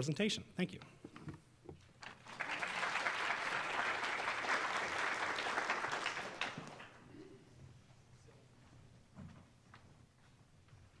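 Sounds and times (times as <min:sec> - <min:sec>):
audience applauding: 0:02.0 - 0:07.1.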